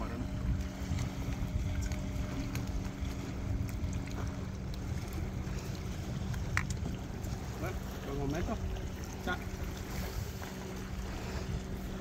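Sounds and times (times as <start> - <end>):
sea surf against rocks: 0.0 - 12.0
steady low hum: 0.0 - 12.0
wind buffeting microphone: 0.0 - 12.0.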